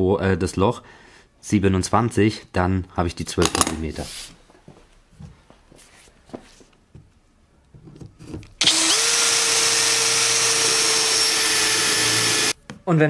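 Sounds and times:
cordless drill boring into wood: 8.6s - 12.6s.

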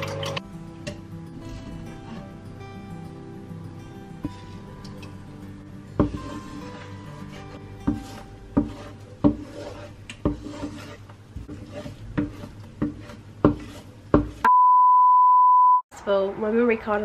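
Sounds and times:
spatula knocking frying pan: 7.8s - 10.7s
loud high-pitched beep: 14.5s - 15.8s.

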